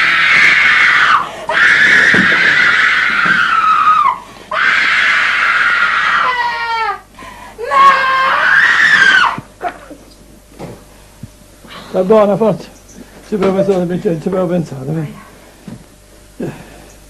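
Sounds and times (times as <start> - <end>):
woman screaming: 0.0 - 9.4.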